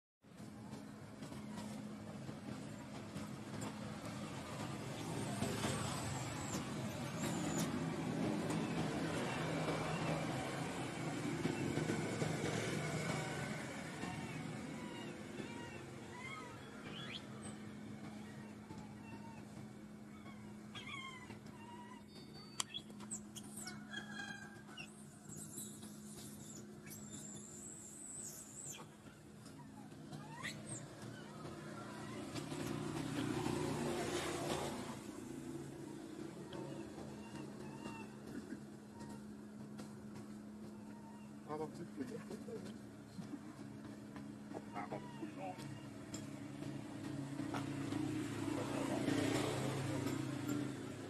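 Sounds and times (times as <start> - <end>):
vehicle engine humming: 0.3 - 51.0
infant monkey crying squeaks: 5.9 - 7.8, 14.0 - 19.4, 20.1 - 23.8, 24.7 - 32.3, 36.6 - 38.4, 44.6 - 45.9.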